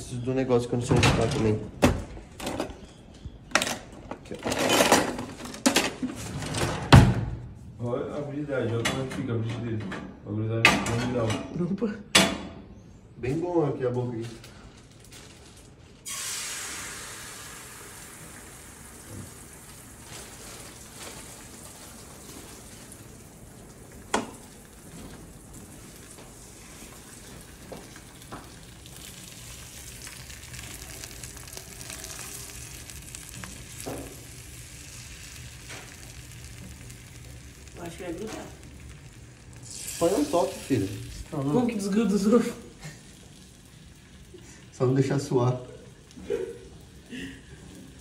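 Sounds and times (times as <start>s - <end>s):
eggs sizzling in pan: 16.0s - 48.0s.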